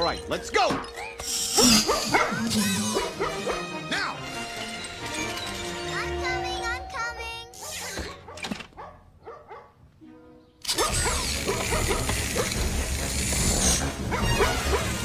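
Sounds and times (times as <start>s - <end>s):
background music: 0.0s - 8.4s, 9.4s - 15.0s
cartoon dog barking: 1.6s - 4.0s, 7.5s - 9.7s, 10.7s - 12.6s, 14.1s - 15.0s.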